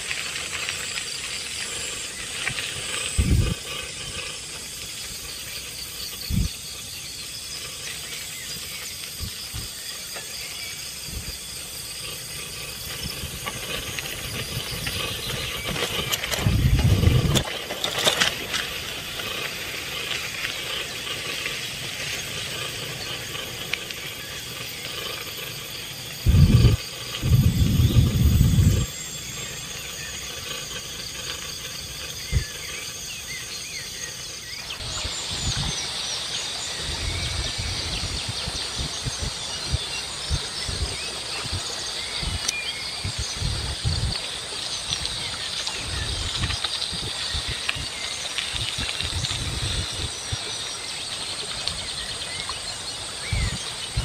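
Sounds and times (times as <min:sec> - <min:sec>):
insects chirring and chirping: 0:00.0 - 0:54.0
low rumble: 0:26.1 - 0:29.6.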